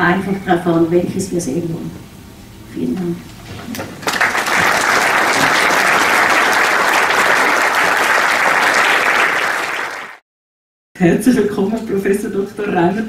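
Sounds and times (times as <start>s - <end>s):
audience applauding: 3.7s - 10.2s.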